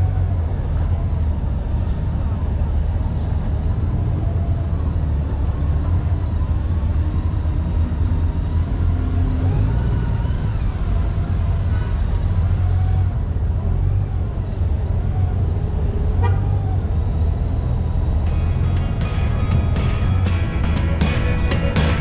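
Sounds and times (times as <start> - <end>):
motorcycle engine rumble: 17.8 - 22.0.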